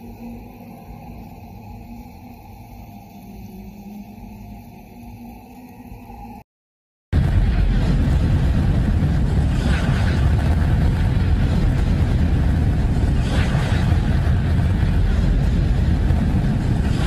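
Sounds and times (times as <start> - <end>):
low rumbling drone: 7.2 - 17.0.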